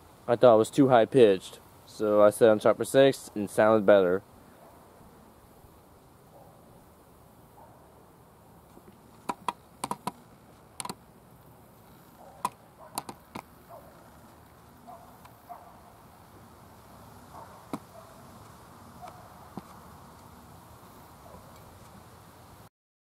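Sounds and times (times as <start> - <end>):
sharp clicks and taps: 9.2 - 10.2, 10.8 - 11.0, 12.4 - 13.5.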